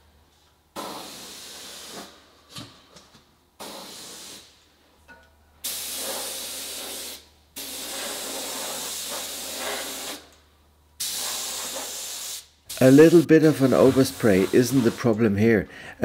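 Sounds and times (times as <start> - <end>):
paint spray gun hissing: 5.6 - 10.3, 11.0 - 15.2.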